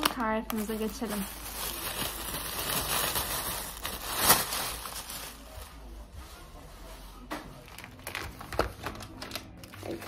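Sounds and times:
plastic bag rustling: 0.0 - 10.0.

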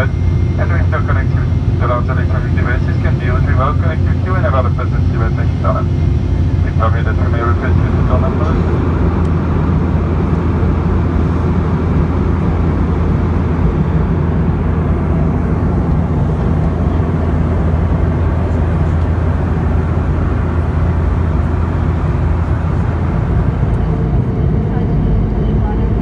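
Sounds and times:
constant low hum: 0.0 - 26.0
jet engines droning: 0.0 - 26.0.

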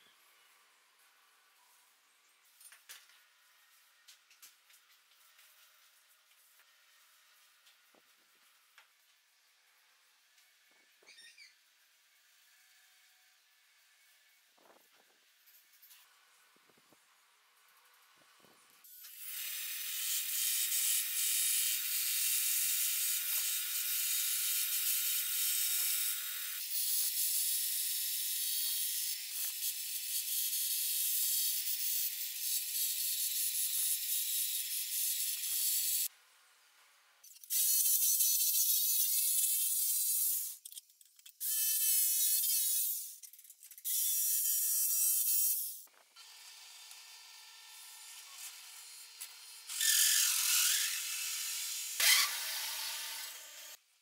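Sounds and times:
bandsaw cutting wood: 46.2 - 53.8.

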